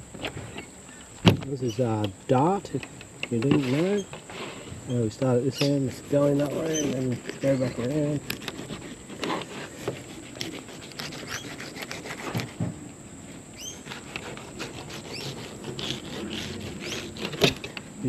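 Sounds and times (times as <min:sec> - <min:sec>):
knife scraping fish: 0:05.6 - 0:12.6, 0:13.7 - 0:17.8.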